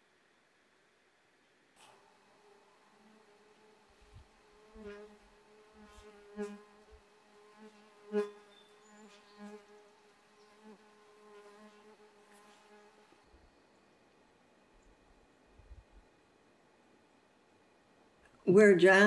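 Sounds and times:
flying insect buzzing: 0:01.8 - 0:13.3.

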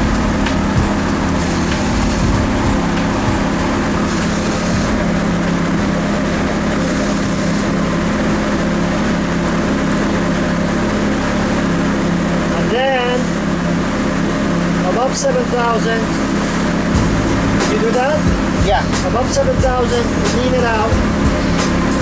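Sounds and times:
car engine droning: 0:00.0 - 0:22.0.

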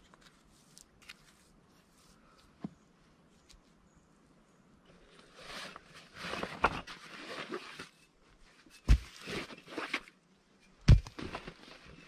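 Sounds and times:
brick thudding down: 0:08.8 - 0:09.5, 0:10.8 - 0:11.5.

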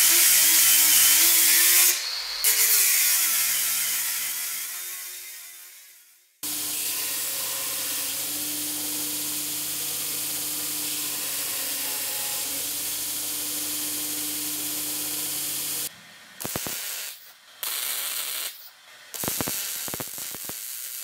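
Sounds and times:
welding arc hissing: 0:00.0 - 0:03.8, 0:06.4 - 0:21.0
machine sound: 0:06.4 - 0:15.9.

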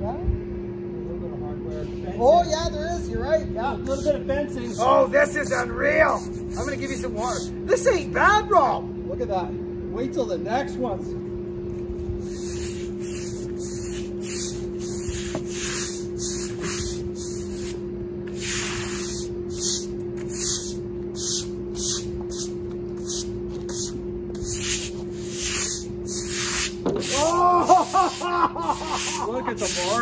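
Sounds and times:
steady low hum: 0:00.0 - 0:30.0
push broom swishing on wet wood: 0:27.9 - 0:30.0.

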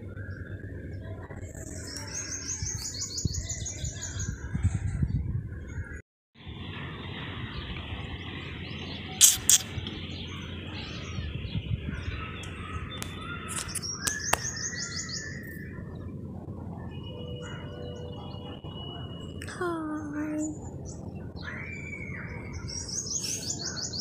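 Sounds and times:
small birds chirping: 0:07.5 - 0:16.1, 0:19.9 - 0:24.0
sharp clicks: 0:12.4 - 0:14.5.

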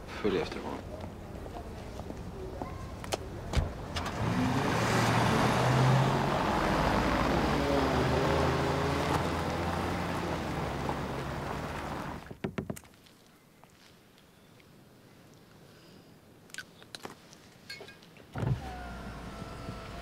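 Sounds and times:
car engine pulling away: 0:03.6 - 0:12.2, 0:18.4 - 0:20.0.

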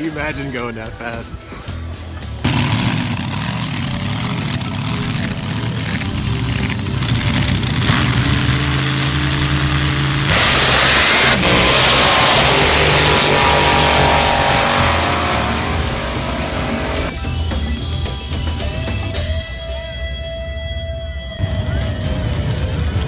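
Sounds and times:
race car engine revving hard: 0:02.4 - 0:06.5, 0:07.1 - 0:17.2.

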